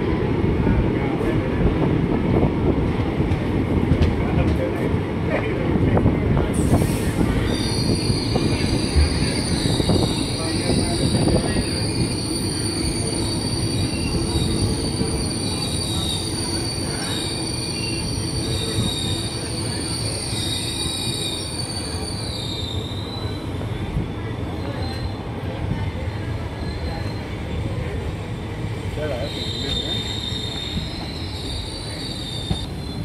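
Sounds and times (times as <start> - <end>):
train rumble: 0.0 - 33.0
train wheels squealing: 6.6 - 28.2, 29.0 - 33.0.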